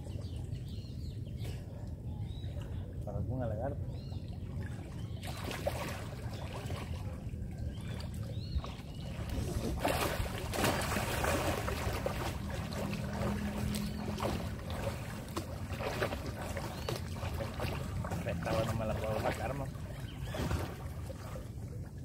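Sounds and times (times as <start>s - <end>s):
water splashing: 2.5s - 22.0s
steady low rumble: 6.0s - 22.0s.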